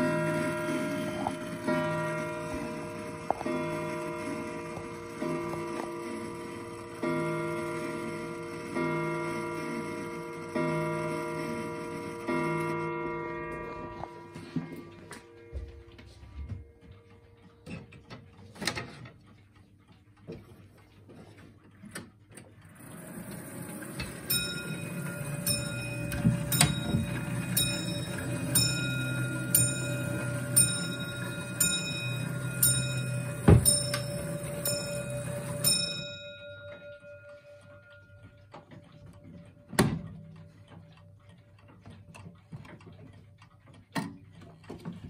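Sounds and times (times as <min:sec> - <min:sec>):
clock strike train whirring: 0:00.0 - 0:15.0, 0:22.7 - 0:38.2
clock ticking: 0:00.0 - 0:15.5, 0:16.4 - 0:45.0
clock bell ringing: 0:00.0 - 0:17.3, 0:22.8 - 0:41.0.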